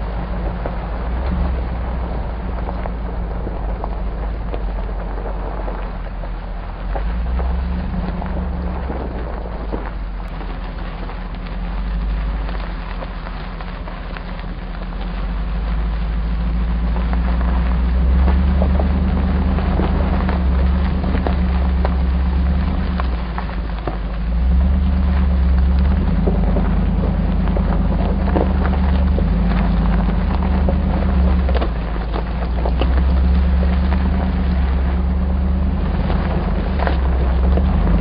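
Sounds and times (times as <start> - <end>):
gravel knocks and rattles: 0.0 - 38.0
low engine drone: 0.0 - 38.0.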